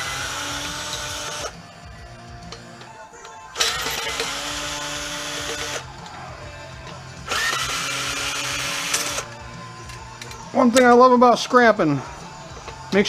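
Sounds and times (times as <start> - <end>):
cordless drill spinning screws: 0.0 - 1.6, 3.6 - 5.9, 7.2 - 9.4.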